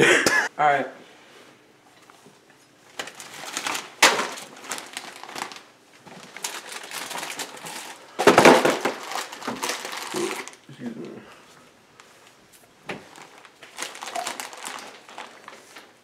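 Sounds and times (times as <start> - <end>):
snack packages crinkling: 2.9 - 10.7, 13.0 - 16.0.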